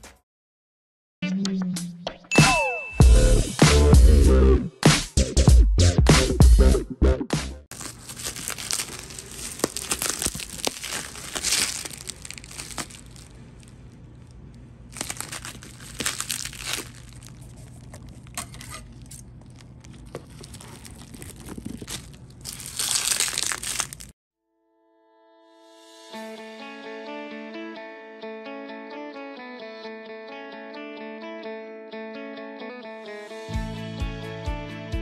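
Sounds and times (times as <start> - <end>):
bubble wrap crinkling: 7.7 - 24.2.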